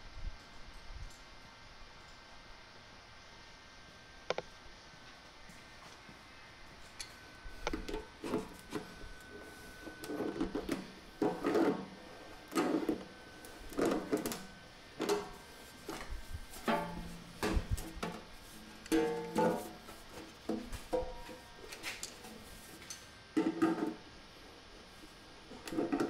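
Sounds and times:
metal scrapes and clanks: 15.0s - 18.1s.

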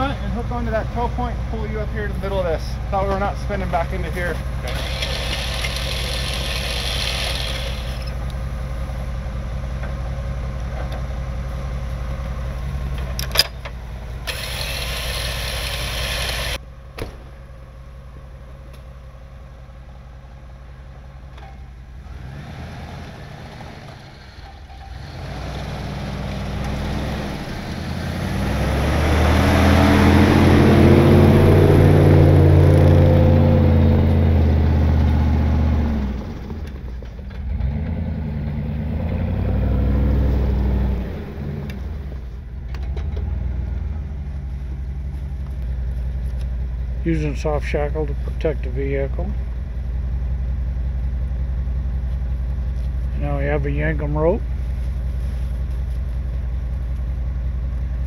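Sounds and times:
jeep engine revving: 0.0s - 9.6s, 14.1s - 16.6s, 21.9s - 50.3s
vehicle engines idling: 0.0s - 58.0s.

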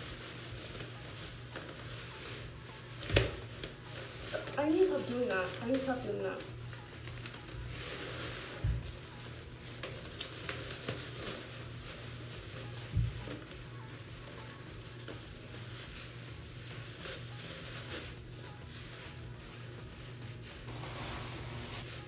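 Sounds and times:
plastic bags crinkling: 0.0s - 22.0s.

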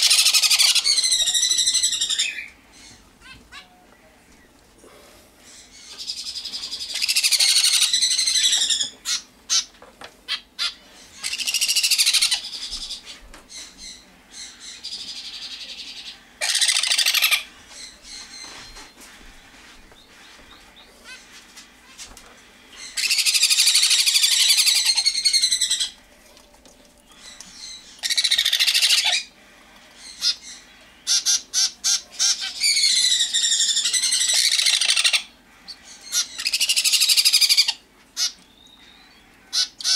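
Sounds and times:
baby birds begging calls: 0.0s - 4.5s, 5.5s - 26.0s, 27.1s - 29.3s, 30.0s - 39.9s.

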